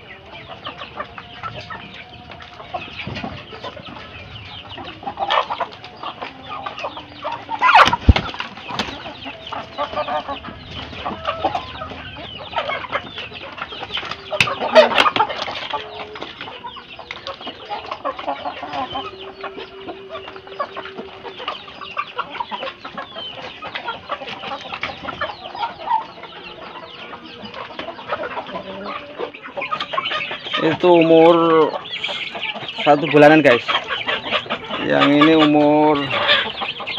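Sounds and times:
chickens clucking and squabbling: 0:00.0 - 0:36.9
wings flapping: 0:02.4 - 0:26.1.

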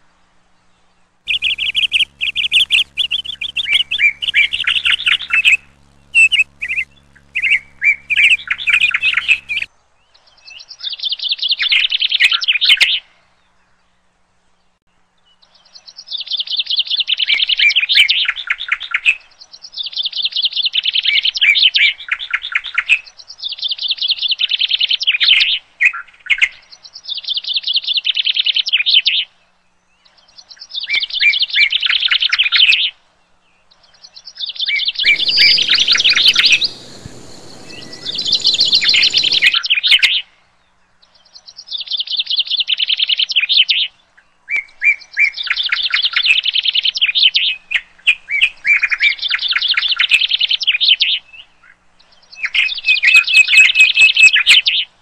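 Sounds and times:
bird song chirping: 0:00.7 - 0:10.8, 0:35.0 - 0:39.7.

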